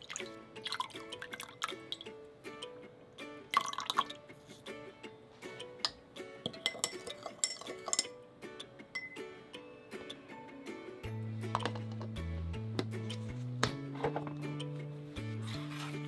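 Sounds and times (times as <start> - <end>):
liquid dripping into glass jar: 0.0 - 2.1, 3.6 - 4.2
light background music: 0.0 - 16.0
spoon clicking against glass: 6.5 - 8.2.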